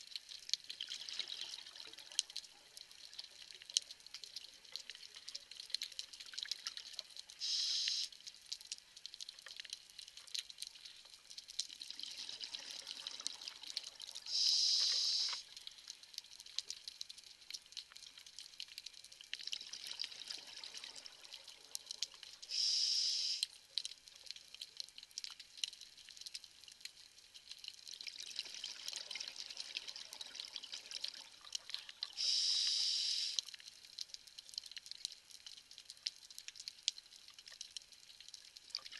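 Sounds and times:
regulator inhalation hiss: 7.4 - 8.1, 14.3 - 15.4, 22.5 - 23.5, 32.2 - 33.4
reef clicks crackling: 14.3 - 15.4.

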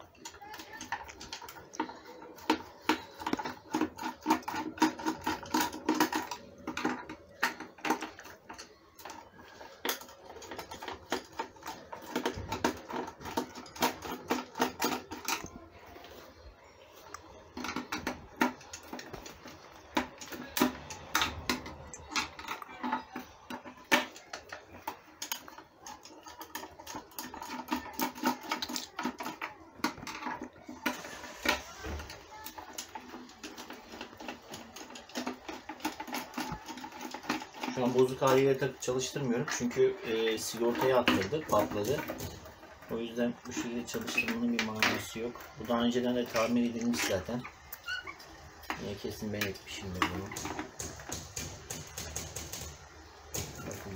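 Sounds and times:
screwdriver clicking and scraping: 0.0 - 15.6, 39.4 - 53.9
squeaking: 0.0 - 53.9.

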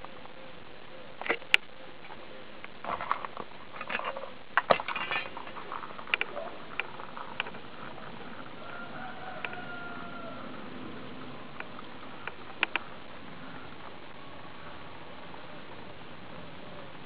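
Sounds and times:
crab claws scrabbling on concrete: 2.8 - 9.6.

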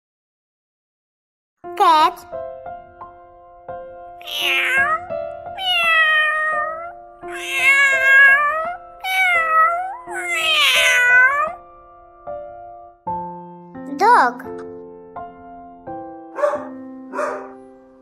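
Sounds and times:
background keyboard music: 1.6 - 18.0
cat meowing: 4.2 - 11.6.

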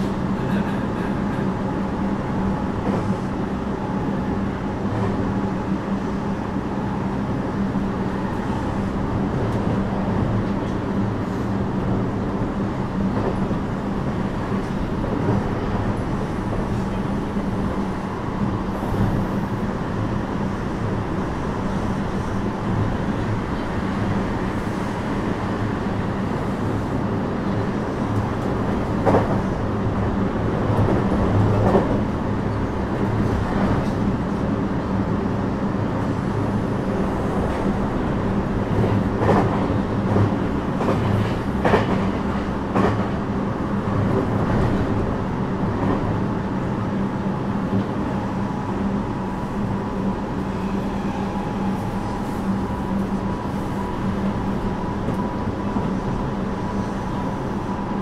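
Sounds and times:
train wheels rumbling on rail: 0.0 - 58.0
clacks over rail joints: 38.7 - 43.2.

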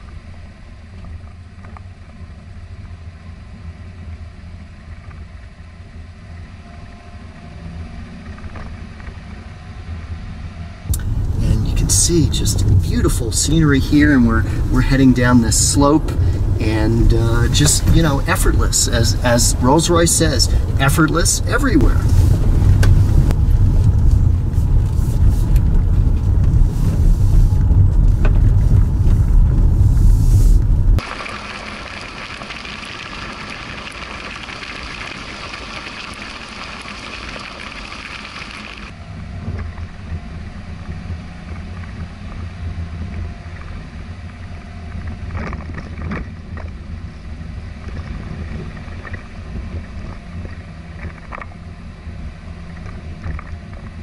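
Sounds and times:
vehicle low rumble: 0.0 - 54.0
wind: 0.0 - 54.0.

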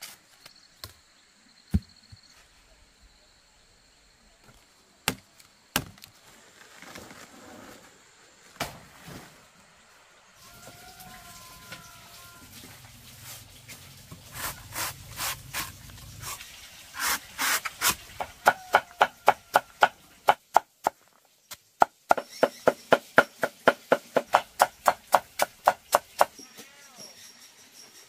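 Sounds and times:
chopping strikes on wood: 5.0 - 6.0, 22.1 - 26.3.

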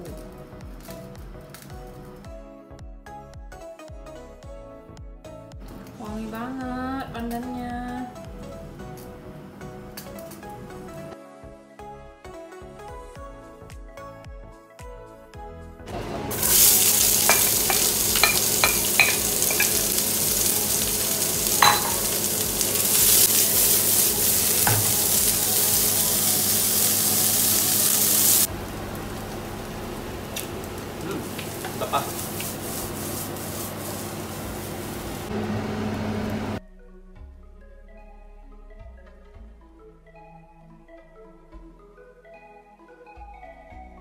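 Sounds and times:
vegetables sizzling in a frying pan: 16.0 - 36.6.

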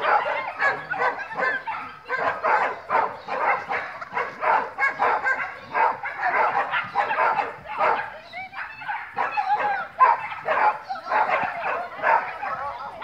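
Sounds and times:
dog barking rapidly: 0.0 - 13.0.

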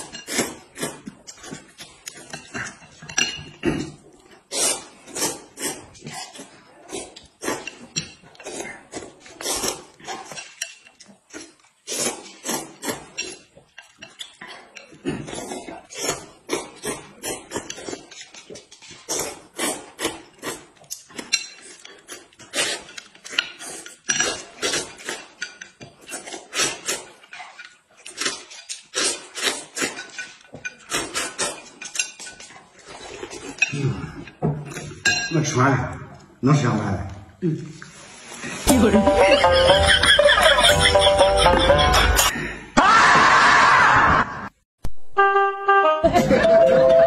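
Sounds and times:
noodles slurped and chewed: 0.0 - 34.4.

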